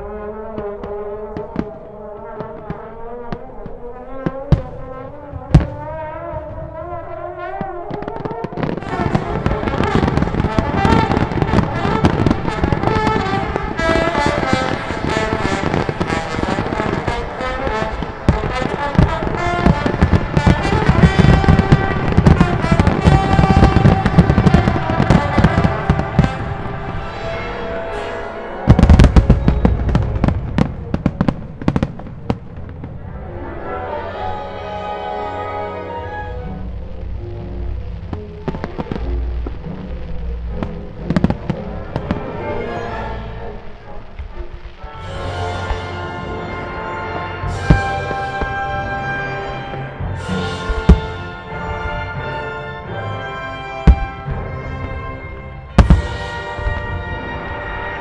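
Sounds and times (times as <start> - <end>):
fireworks bursting and crackling: 0.0 - 33.3, 36.0 - 58.0
music: 0.0 - 58.0
heavy firework booms: 4.2 - 33.0, 47.4 - 52.3, 53.8 - 55.1, 55.7 - 57.9.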